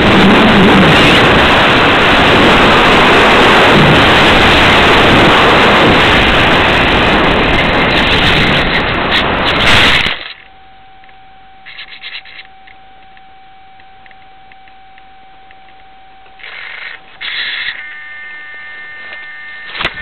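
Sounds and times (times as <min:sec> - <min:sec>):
faint steady high tone: 0:10.0 - 0:20.0.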